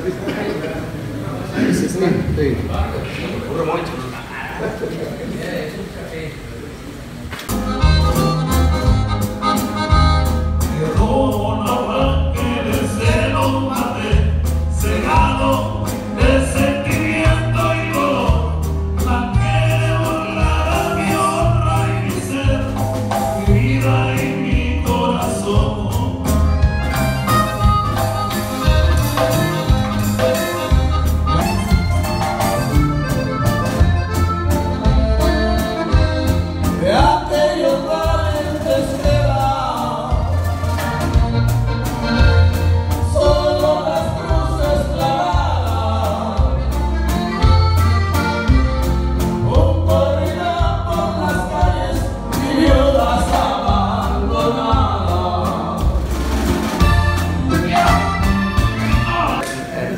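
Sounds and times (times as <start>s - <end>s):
live band playing: 7.0s - 59.9s
accordion: 7.5s - 59.9s
lead vocal singing: 10.6s - 26.7s, 36.6s - 41.2s, 42.9s - 47.4s, 49.2s - 59.9s.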